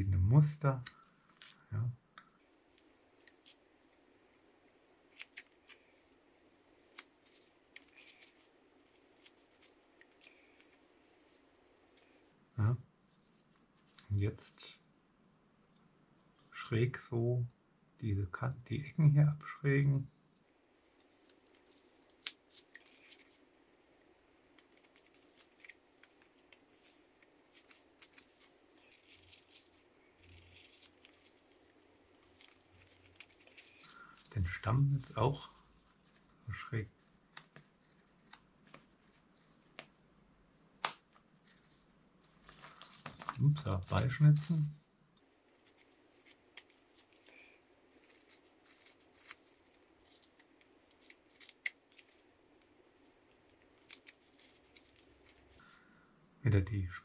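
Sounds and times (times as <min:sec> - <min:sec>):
knife carving wood: 0:02.6 - 0:12.2, 0:20.7 - 0:34.3, 0:37.2 - 0:39.1, 0:45.2 - 0:55.6
knife cutting wood: 0:45.5 - 0:52.2.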